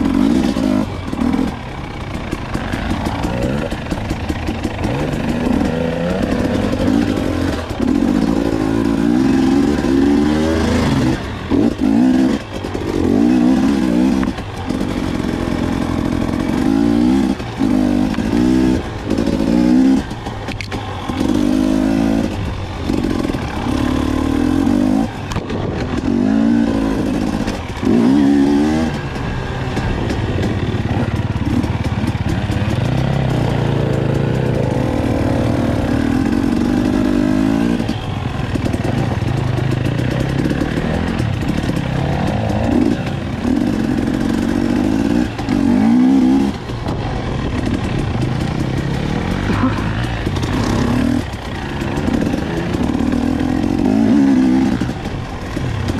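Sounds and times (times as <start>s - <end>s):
dirt bike engine revving: 0.0s - 55.9s.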